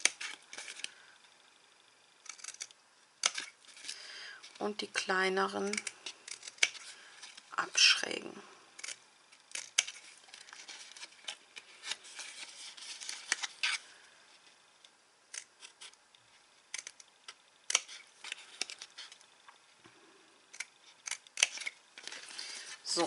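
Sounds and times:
scissors snipping cardstock: 0:02.2 - 0:03.5, 0:05.6 - 0:06.8, 0:08.8 - 0:10.0, 0:17.7 - 0:18.0, 0:20.5 - 0:22.1.

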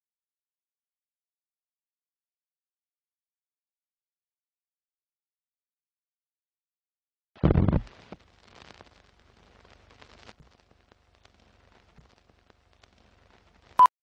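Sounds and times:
old film crackle and pops: 0:07.4 - 0:13.8.

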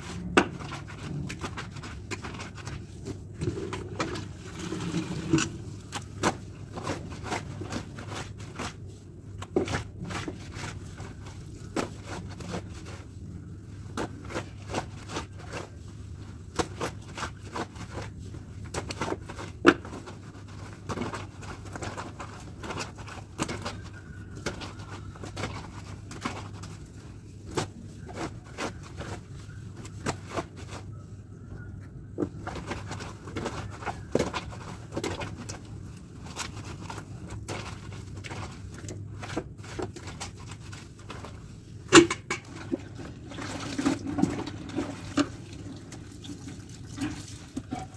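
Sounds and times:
wet fabric scrubbing in bucket: 0:00.0 - 0:31.2, 0:42.4 - 0:47.9.

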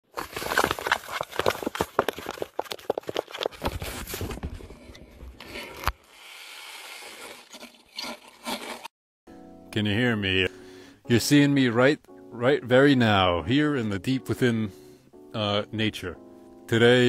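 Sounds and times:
tube scraping against camera: 0:00.1 - 0:08.9.

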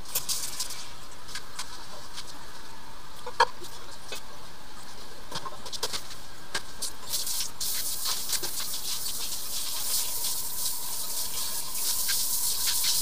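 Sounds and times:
steady hiss: 0:06.8 - 0:13.0.

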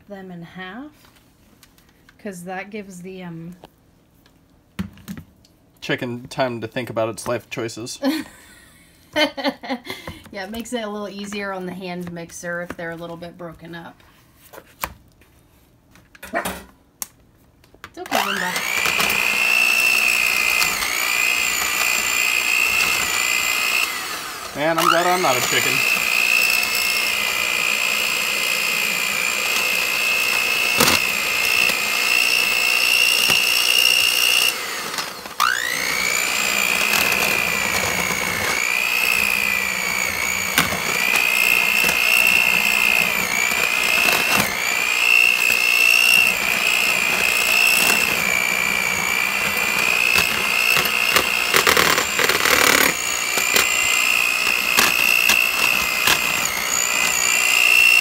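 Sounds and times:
electric hand mixer whining: 0:18.0 - 0:58.0.

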